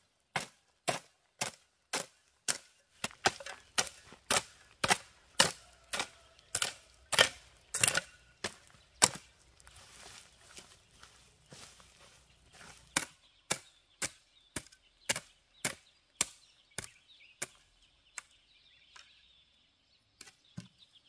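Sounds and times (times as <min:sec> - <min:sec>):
weeds dragged over ground: 0:00.0 - 0:13.2
hoe chopping into soil: 0:00.3 - 0:09.4, 0:12.6 - 0:17.6.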